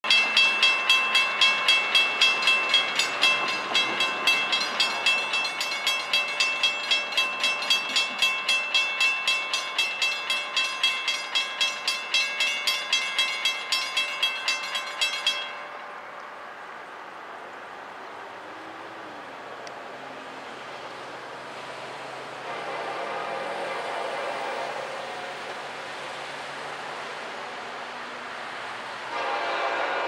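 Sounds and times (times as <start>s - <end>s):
railroad crossing bell ringing: 0.0s - 16.7s.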